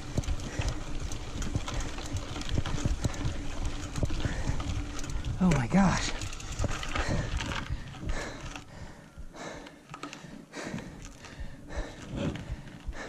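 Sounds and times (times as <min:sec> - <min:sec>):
heavy quick breathing: 0:06.9 - 0:13.0.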